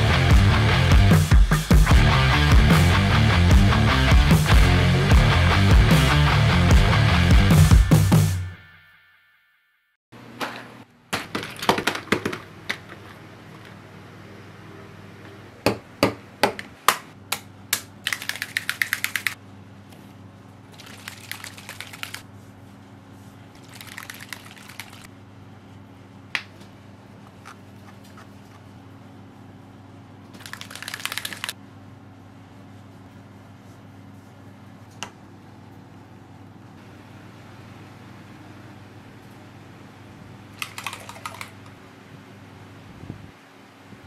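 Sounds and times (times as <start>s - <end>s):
rapid clicking and rattling: 18.0s - 19.4s, 20.8s - 22.2s, 23.6s - 25.1s, 30.4s - 31.6s, 40.6s - 41.7s.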